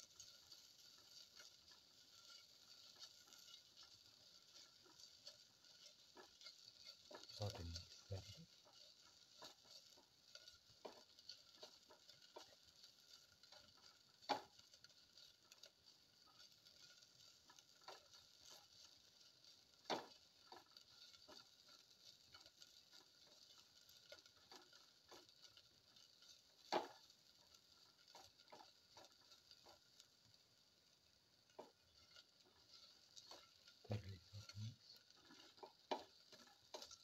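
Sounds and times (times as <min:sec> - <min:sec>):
spatula scraping steel pot: 0:00.0 - 0:30.4, 0:31.6 - 0:37.0.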